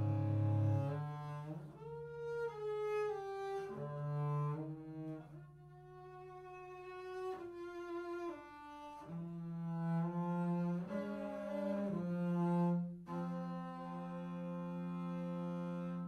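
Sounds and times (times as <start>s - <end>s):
bowed double bass: 0.0s - 16.0s.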